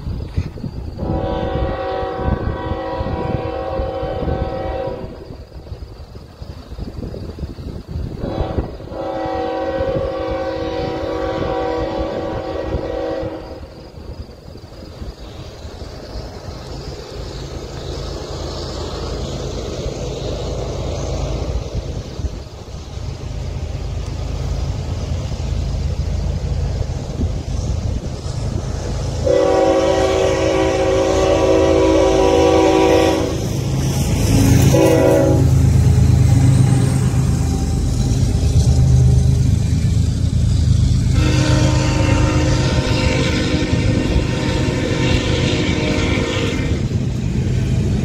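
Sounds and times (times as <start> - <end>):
diesel locomotive engines rumbling: 0.0 - 48.0
locomotive air horn blast: 1.0 - 5.2, 8.2 - 13.7, 29.2 - 33.5, 34.2 - 37.9, 41.0 - 46.9
low rumble: 33.4 - 41.5.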